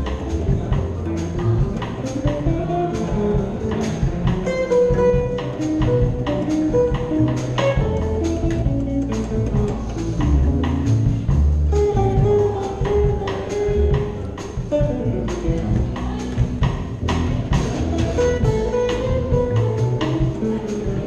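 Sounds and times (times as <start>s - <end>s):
drum kit keeping time: 0.0s - 21.0s
electric guitar melody: 0.0s - 21.0s
upright double bass: 0.0s - 21.0s.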